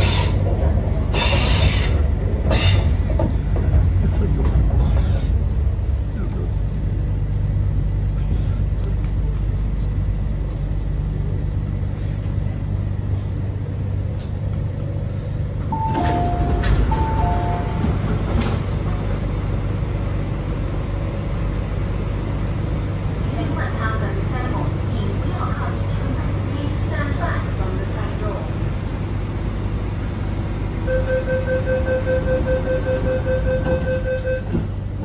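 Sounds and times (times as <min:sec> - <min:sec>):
train doors clunking: 0:00.0 - 0:05.8, 0:15.5 - 0:19.5, 0:32.0 - 0:35.0
train car hum: 0:00.0 - 0:35.0
two-tone door chime: 0:15.8 - 0:17.8.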